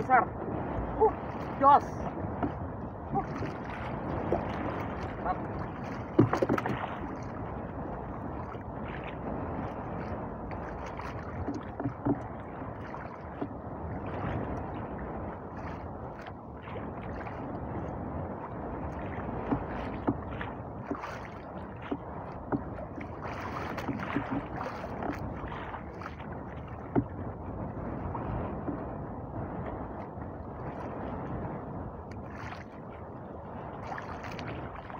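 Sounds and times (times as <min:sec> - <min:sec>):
water lapping against boat hull: 0:00.0 - 0:34.9
knocks against boat: 0:02.3 - 0:03.6, 0:06.0 - 0:07.0, 0:11.4 - 0:12.3, 0:13.3 - 0:13.6, 0:19.4 - 0:21.1, 0:21.8 - 0:22.8, 0:23.6 - 0:25.3, 0:26.8 - 0:27.2.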